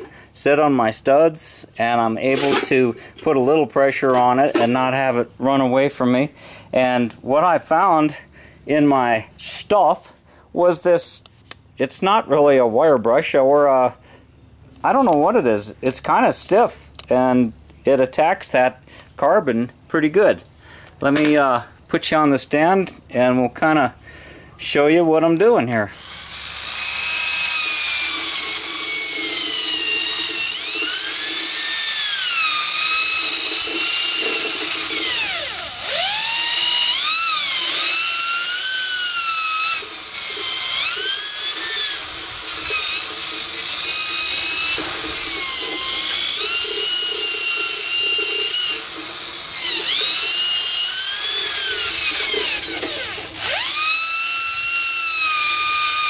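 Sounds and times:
rotary tool brush whining: 25.8s - 56.0s.

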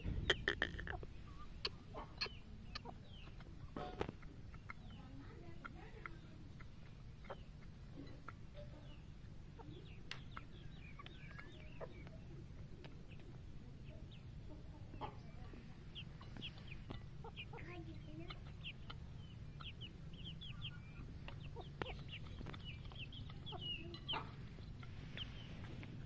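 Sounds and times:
chickens clucking: 0.0s - 26.0s
steady low rumble: 6.2s - 26.0s.

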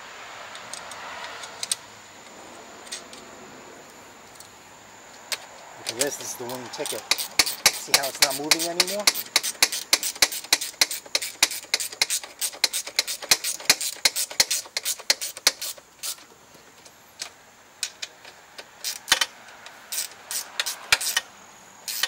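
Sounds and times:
sharp ratcheting clicks: 5.2s - 16.2s, 17.2s - 22.0s.

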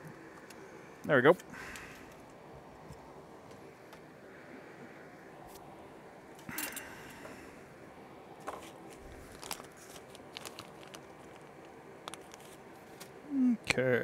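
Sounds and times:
steady low hum: 0.0s - 14.0s
rustle of handling: 8.4s - 13.2s.

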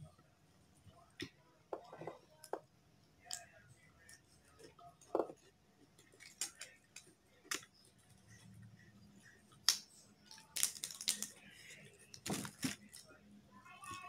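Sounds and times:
cabbage leaf tearing: 10.4s - 11.3s.

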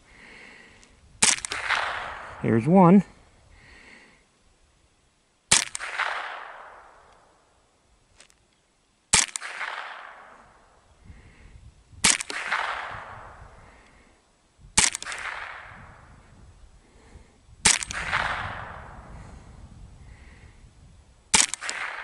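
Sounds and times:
rifle shots with echo: 1.2s - 2.6s, 5.5s - 7.4s, 9.1s - 10.8s, 12.0s - 13.4s, 14.8s - 16.1s, 17.6s - 19.0s, 21.3s - 22.0s.

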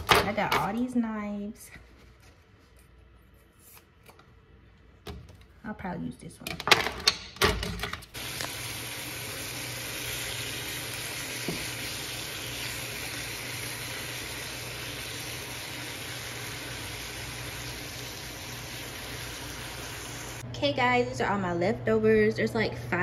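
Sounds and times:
meat sizzling in oil: 8.2s - 20.4s.

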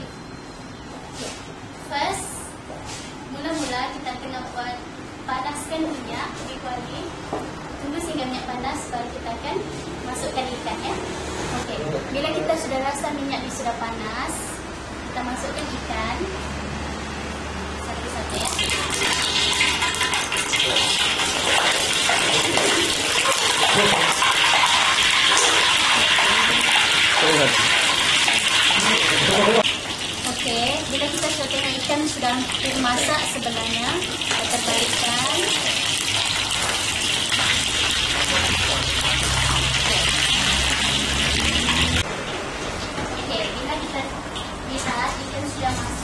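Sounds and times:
fish deep-frying in hot oil: 18.1s - 42.1s.

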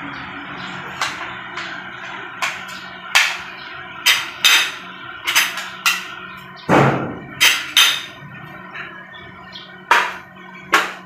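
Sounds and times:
heavy knock: 6.7s - 7.2s.

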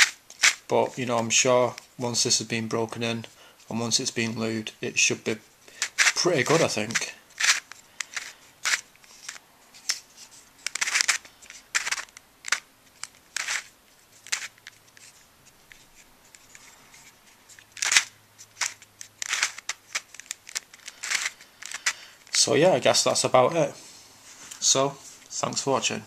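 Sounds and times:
plastic puzzle turning with scraping clicks: 0.0s - 1.9s, 5.4s - 22.5s.

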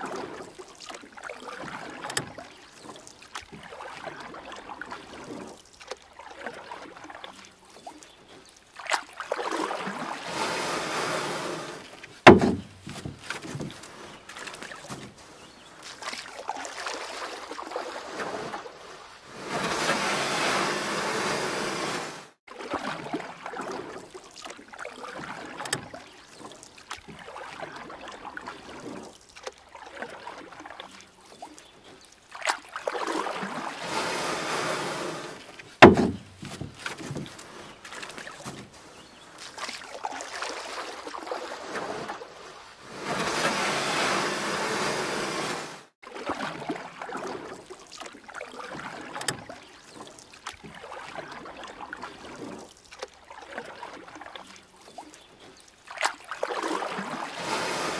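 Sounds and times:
paddle splashing through water: 0.0s - 57.9s
sharp knock: 12.3s - 12.8s, 35.8s - 36.3s.

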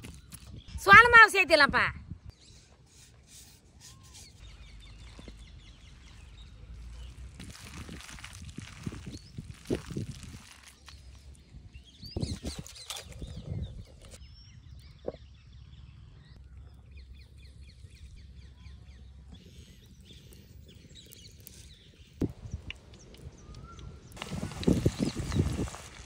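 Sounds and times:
small birds chirping: 2.2s - 26.0s
hand mixing wet batter: 6.8s - 11.2s.

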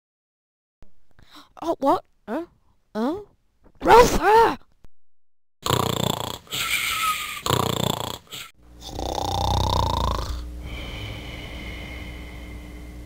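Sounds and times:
person snoring: 5.6s - 12.6s.

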